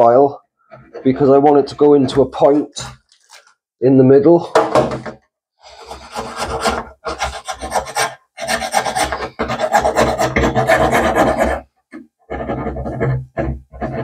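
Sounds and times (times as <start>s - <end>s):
needle file rasping: 5.6s - 11.7s.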